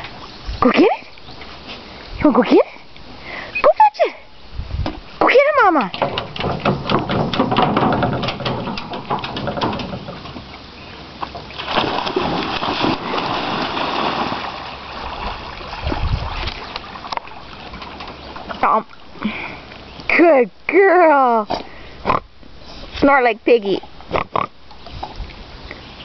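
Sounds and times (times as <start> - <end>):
ticks and knocks: 5.8 - 10.5
dog splashing through water: 11.5 - 18.9.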